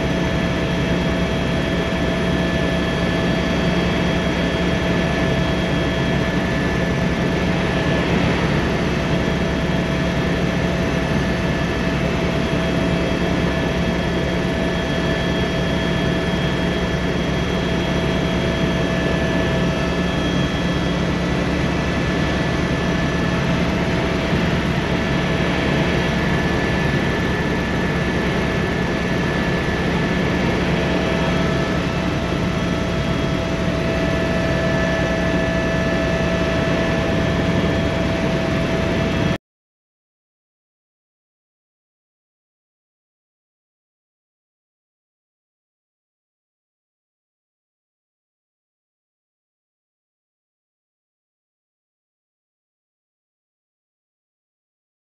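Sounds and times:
helicopter cabin rotor noise: 0.0s - 39.4s.

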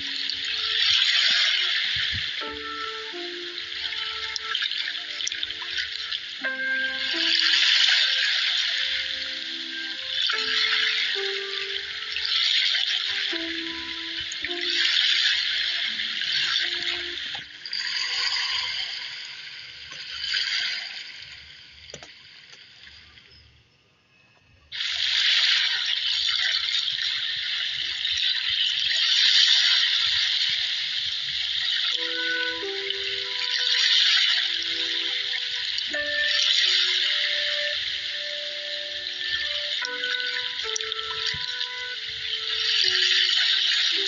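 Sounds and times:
faint melody of held notes: 0.0s - 19.2s, 31.8s - 44.0s
sea waves splashing: 0.0s - 21.3s, 24.8s - 44.0s.

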